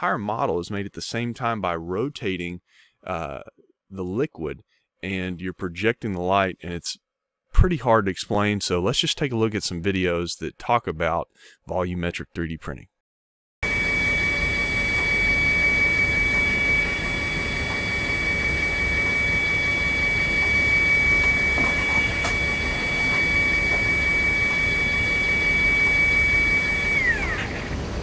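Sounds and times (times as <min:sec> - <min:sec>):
machine whine: 0:13.6 - 0:28.0.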